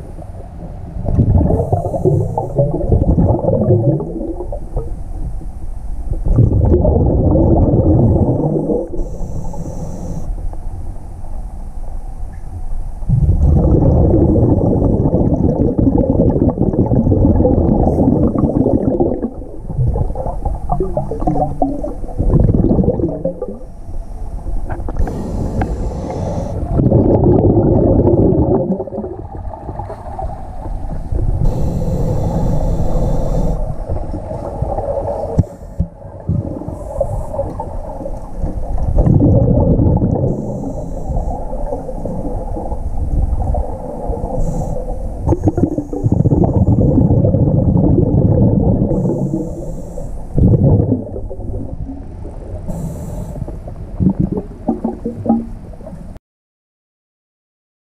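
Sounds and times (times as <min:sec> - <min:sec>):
exhaled bubbles rumbling: 0:00.0 - 0:09.6, 0:13.0 - 0:49.6, 0:50.2 - 0:56.2
regulator inhalation hiss: 0:01.5 - 0:02.6, 0:08.9 - 0:10.5, 0:23.7 - 0:26.8, 0:31.4 - 0:35.9, 0:36.6 - 0:38.4, 0:40.3 - 0:42.3, 0:43.8 - 0:46.4, 0:48.9 - 0:50.4, 0:52.7 - 0:53.7.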